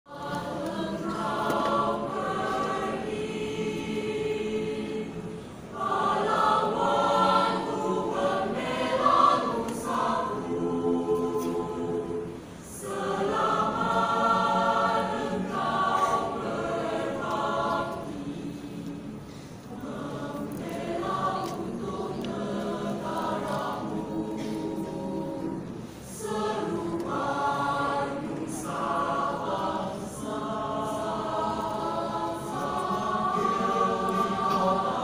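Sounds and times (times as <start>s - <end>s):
choir singing in parts: 0.1s - 35.0s.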